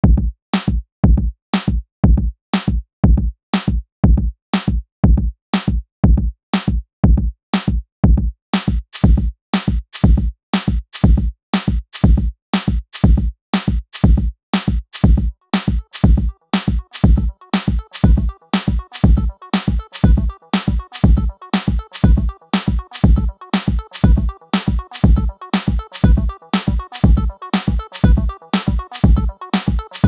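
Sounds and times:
electronic music with drum machine: 14.9s - 30.0s.

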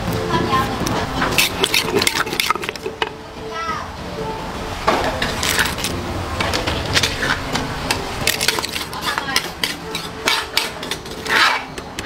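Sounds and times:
pestle pounding in mortar: 1.2s - 3.1s, 7.9s - 11.5s.

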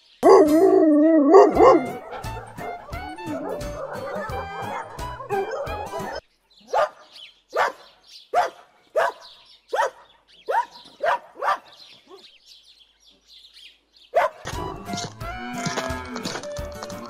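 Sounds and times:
faint birdsong: 0.0s - 15.3s
dog barking: 1.3s - 12.2s, 14.1s - 14.5s.

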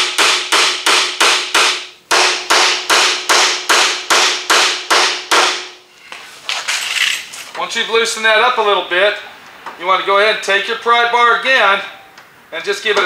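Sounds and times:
hammer striking metal tool: 0.0s - 5.8s.

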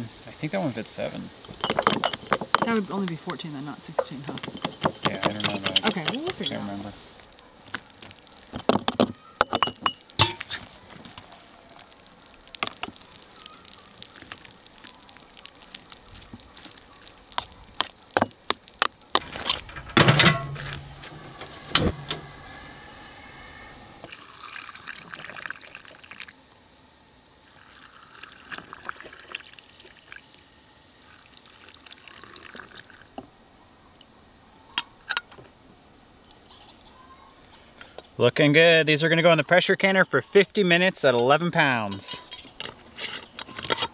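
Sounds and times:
glass and metal lids clinking: 1.4s - 2.8s, 4.0s - 6.7s, 8.9s - 10.5s, 19.2s - 21.0s
water pouring into glass jars: 24.0s - 26.4s, 27.4s - 30.4s, 31.0s - 33.2s.

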